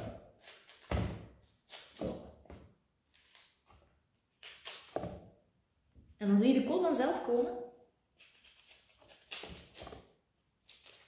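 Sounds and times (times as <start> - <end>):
knife crunching through stems: 3.1 - 5.2, 8.2 - 11.0.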